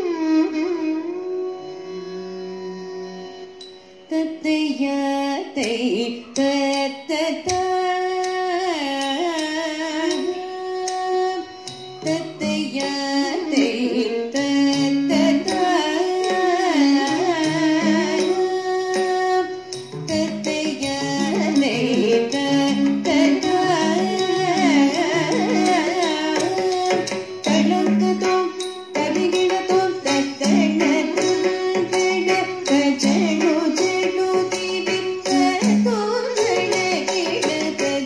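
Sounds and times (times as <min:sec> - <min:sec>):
instrumental accompaniment: 0:00.0 - 0:38.0
person singing with gliding notes: 0:04.1 - 0:38.0.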